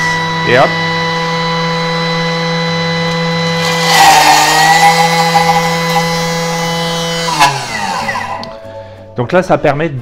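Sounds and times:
food processor motor whine: 0.0s - 8.6s
blades chopping herbs: 3.6s - 8.5s.

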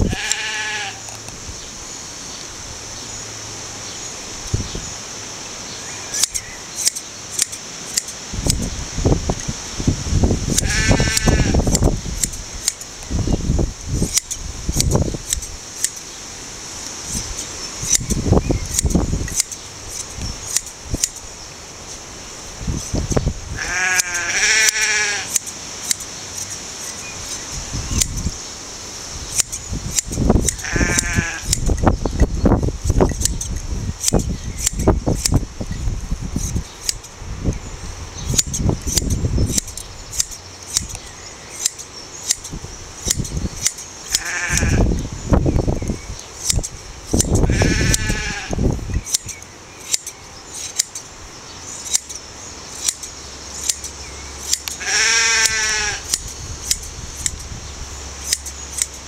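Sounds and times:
sheep bleating: 0.0s - 1.0s, 10.6s - 11.6s, 23.6s - 25.3s, 30.6s - 31.5s, 44.2s - 44.9s, 47.4s - 48.6s, 54.8s - 56.1s
shears snipping fleece: 6.1s - 9.5s, 10.4s - 13.2s, 13.9s - 21.3s, 22.7s - 28.3s, 29.2s - 37.2s, 38.3s - 45.0s, 45.8s - 57.6s, 58.2s - 59.0s.

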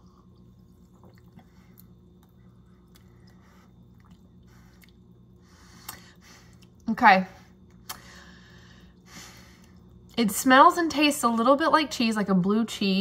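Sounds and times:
sipping and swallowing: 0.0s - 6.0s
wet mouth clicks: 5.8s - 6.0s.

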